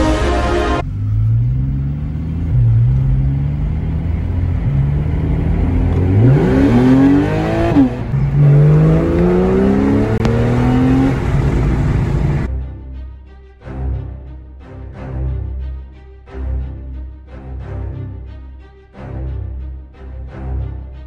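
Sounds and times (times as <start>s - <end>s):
car engine accelerating hard: 0.7s - 12.5s.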